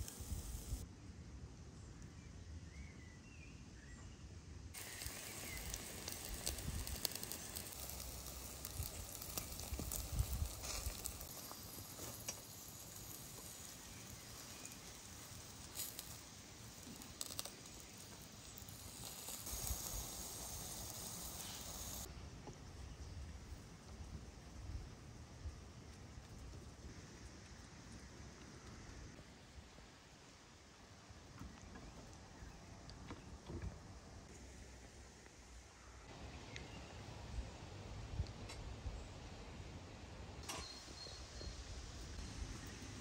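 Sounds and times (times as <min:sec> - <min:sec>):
meat sizzling over charcoal: 0:00.0 - 0:00.8, 0:04.8 - 0:22.1.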